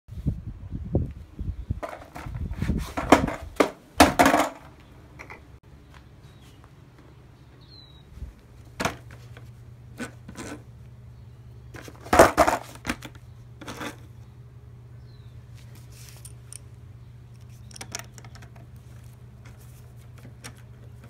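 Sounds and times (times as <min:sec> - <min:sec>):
skateboard knocking and clattering: 0:01.8 - 0:04.8, 0:11.8 - 0:13.9
low steady hum: 0:03.0 - 0:21.0.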